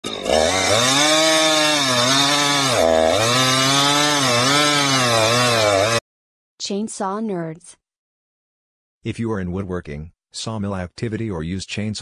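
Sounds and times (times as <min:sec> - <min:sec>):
chainsaw cutting wood: 0:00.0 - 0:06.0.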